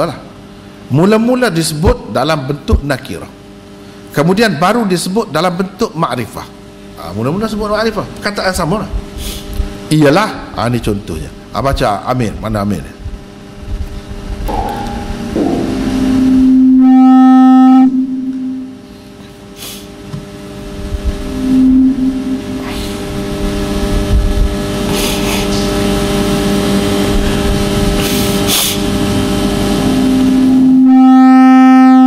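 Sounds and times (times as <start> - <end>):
room noise: 7.0 - 32.0
microphone feedback howl: 14.4 - 19.2, 20.6 - 24.8, 29.4 - 32.0.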